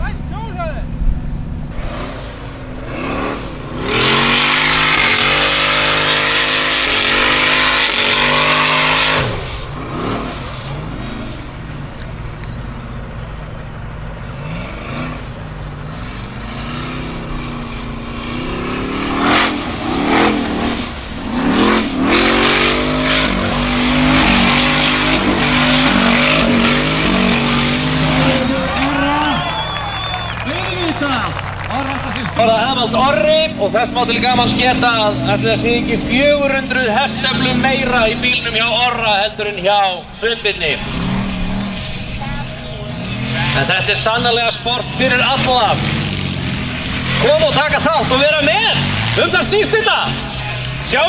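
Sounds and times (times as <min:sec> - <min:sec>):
buggy engine revving hard: 0:01.6 - 0:51.0
tyres spinning on gravel: 0:24.3 - 0:35.8.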